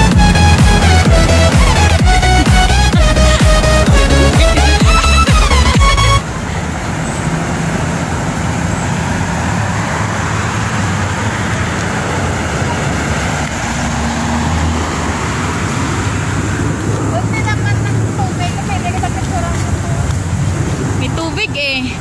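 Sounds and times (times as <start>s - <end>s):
background music: 0.0s - 6.2s
road traffic rumble: 0.0s - 22.0s.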